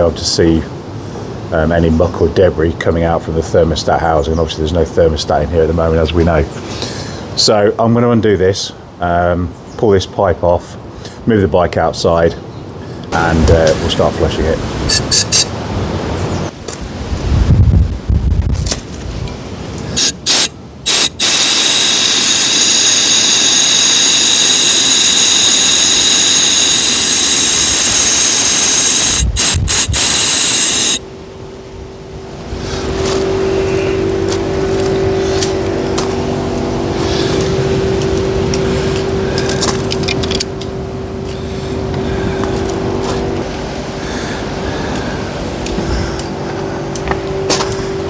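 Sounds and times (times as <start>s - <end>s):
low hum: 19.2s - 48.0s
loud hiss of water spray: 20.0s - 31.0s
spray gun squirting water: 20.0s - 31.0s
water rushing through hose: 20.0s - 31.0s.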